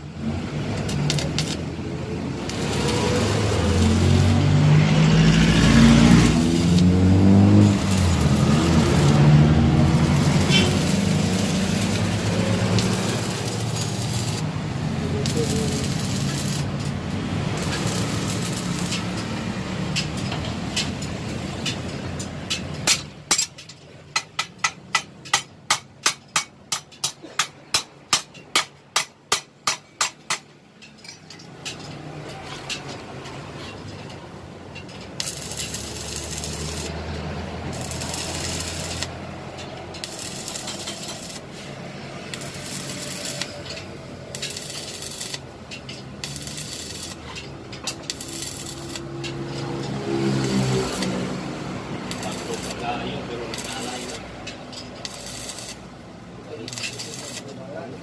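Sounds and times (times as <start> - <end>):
arc welding crackling hiss: 0.2 - 21.8, 35.2 - 57.8.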